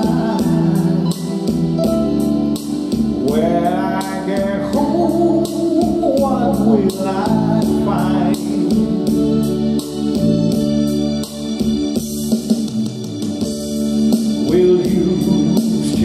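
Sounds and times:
man singing into microphone: 0.0s - 2.0s, 3.1s - 9.5s, 14.4s - 16.0s
backing track with steady beat: 0.0s - 16.0s.

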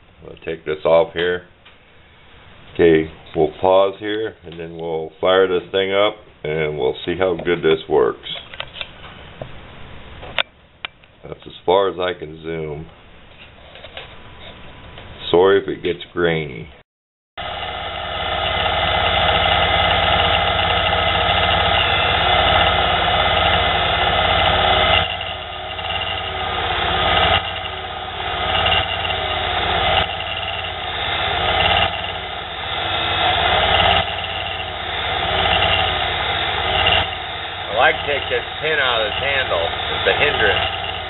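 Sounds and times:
lathe tool cutting metal: 17.4s - 41.0s
mini lathe motor whirring: 17.4s - 41.0s.

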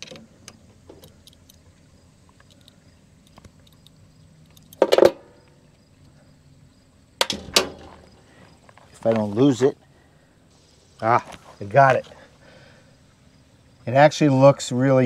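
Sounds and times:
sharp knocks: 7.2s - 8.1s.

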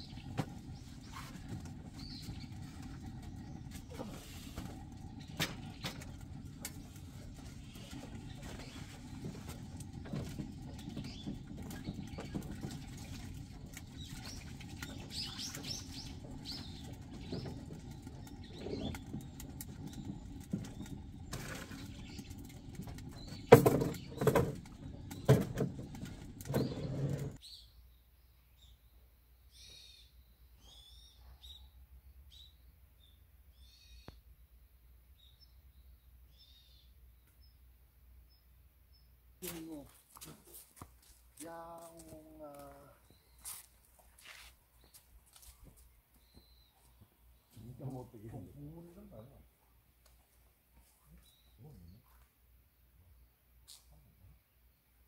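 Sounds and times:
low steady rumble: 0.0s - 27.4s
small birds chirping: 0.0s - 49.6s, 50.2s - 55.0s.

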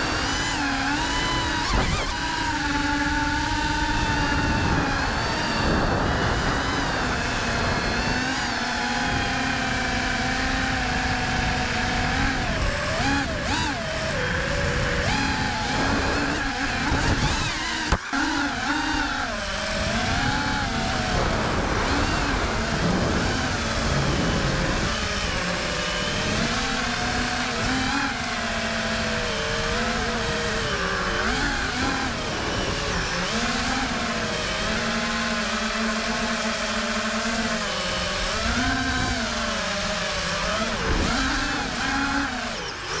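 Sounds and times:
low wind rumble: 0.0s - 43.0s
quadcopter motors whining: 0.0s - 43.0s.

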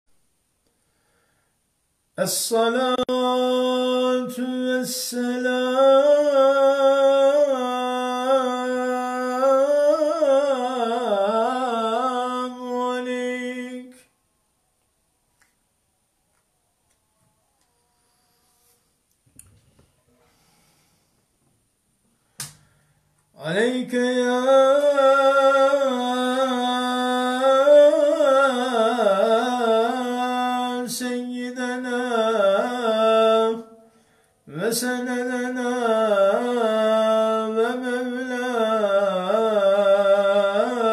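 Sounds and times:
quick breath: 0.6s - 1.7s, 20.1s - 21.4s, 22.1s - 23.2s, 33.8s - 34.5s
man chanting into a microphone: 2.2s - 14.0s, 23.4s - 33.8s, 34.4s - 40.9s.

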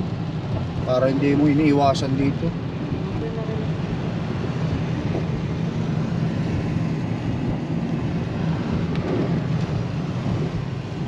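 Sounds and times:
tyres on a wet road: 0.0s - 11.0s.

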